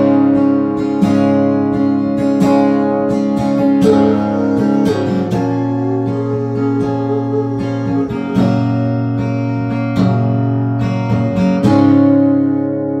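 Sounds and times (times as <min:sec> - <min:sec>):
acoustic guitar strumming chords: 0:00.0 - 0:13.0.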